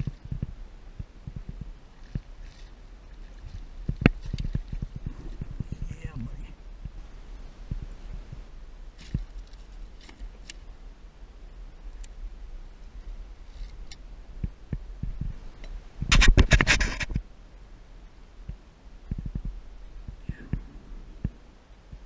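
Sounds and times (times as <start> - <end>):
light taps and scrapes of net: 2.0 - 5.0
fish knocking and rattling: 3.3 - 5.7, 16.0 - 17.2.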